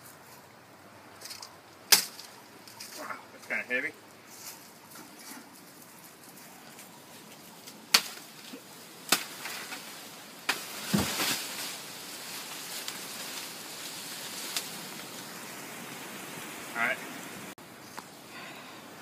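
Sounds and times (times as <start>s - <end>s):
banana leaves rustling: 0.0s - 19.0s
machete chopping plant stalk: 7.9s - 8.2s, 9.1s - 9.6s.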